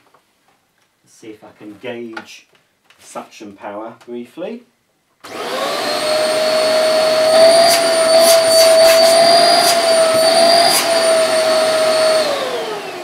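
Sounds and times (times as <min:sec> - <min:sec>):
vacuum cleaner motor humming: 0:05.3 - 0:13.0.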